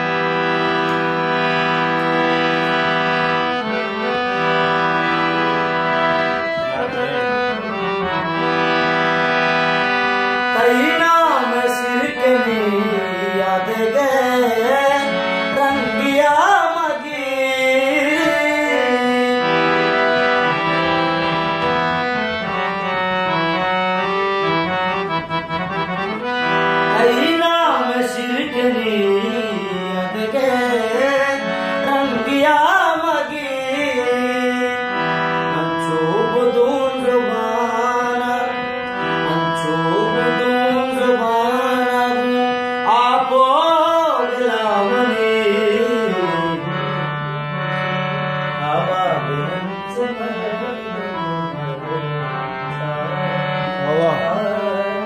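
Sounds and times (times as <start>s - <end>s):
sustained chords: 0.0s - 12.3s.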